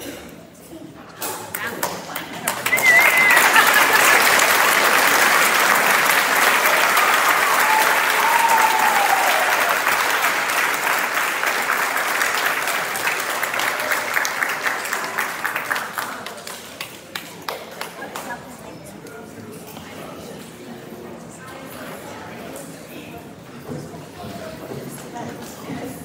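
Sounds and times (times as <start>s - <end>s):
audience applauding: 1.5s - 18.4s.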